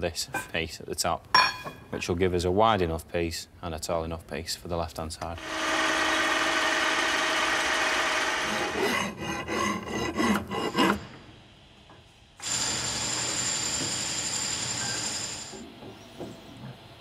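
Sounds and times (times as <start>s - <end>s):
milling machine humming: 5.4s - 8.8s.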